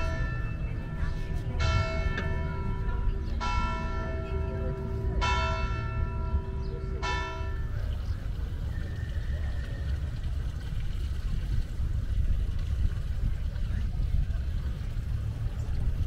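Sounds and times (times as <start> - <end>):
church bell tolling: 0.0 - 7.9.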